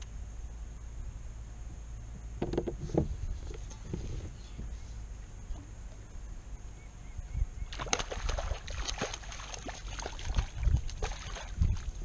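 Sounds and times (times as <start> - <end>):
fish splashing at water surface: 7.8 - 11.9.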